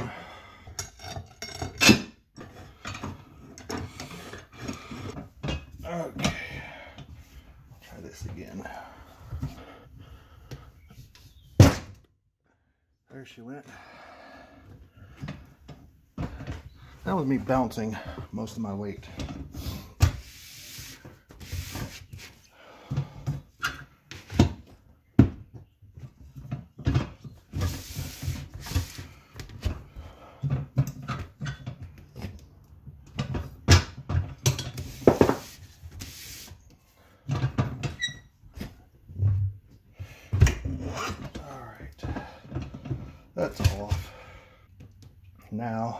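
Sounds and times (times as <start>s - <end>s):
metal clanks knocks and scrapes: 0.8s - 7.1s, 33.1s - 35.9s, 40.3s - 44.2s.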